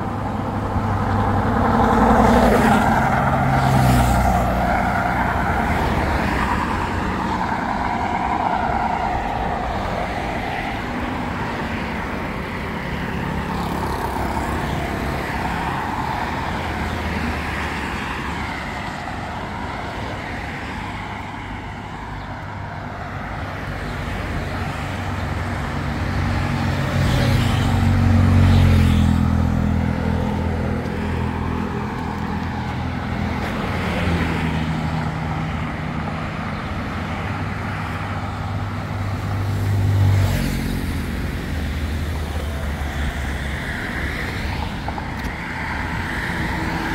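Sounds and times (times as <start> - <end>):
road traffic passing: 0.0 - 46.9.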